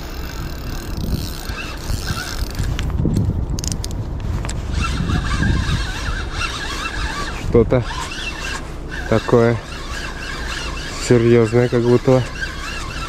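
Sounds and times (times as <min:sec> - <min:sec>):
fishing reel cranking: 0:00.0 - 0:02.8, 0:04.7 - 0:13.0
reel drag clicking: 0:00.0 - 0:13.0
wind rumble on microphone: 0:00.0 - 0:13.0.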